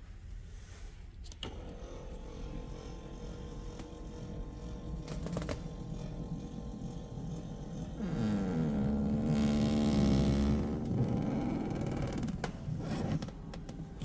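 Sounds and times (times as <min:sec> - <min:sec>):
small electric motor whine: 0:01.5 - 0:13.3.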